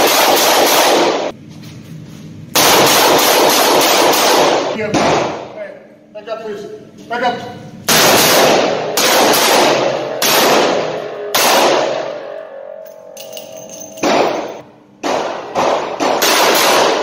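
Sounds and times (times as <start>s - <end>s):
revolver gunshots echoing: 0.0s - 1.3s, 2.6s - 5.6s, 7.9s - 12.4s, 13.4s - 17.0s.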